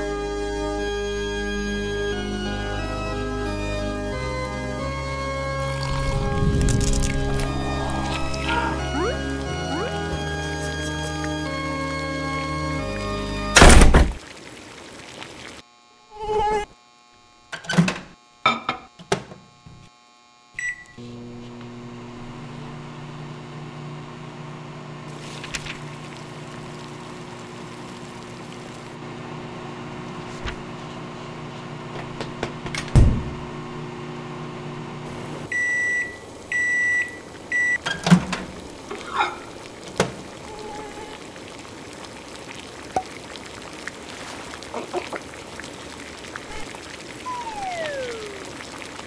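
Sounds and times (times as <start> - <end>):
thump: 13.6 - 14.2, 33.0 - 33.4
microwave oven humming: 15.7 - 40.2
microwave button beep: 20.6 - 21.0, 35.5 - 38.0
microwave finishing beeps: 20.6 - 21.0, 35.5 - 38.2, 47.3 - 48.4.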